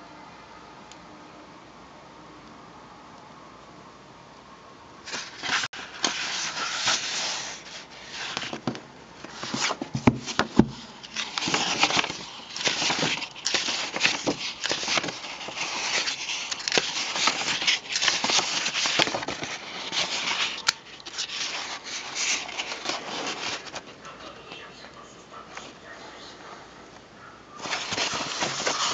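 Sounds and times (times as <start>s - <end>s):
book pages rustling: 5.1s - 26.5s, 27.5s - 28.9s.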